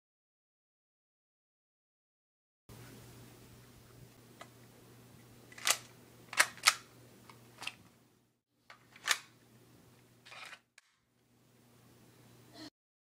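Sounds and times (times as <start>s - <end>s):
low steady hum: 2.7s - 12.7s
gear clicks and snaps: 5.5s - 7.9s, 8.7s - 9.3s.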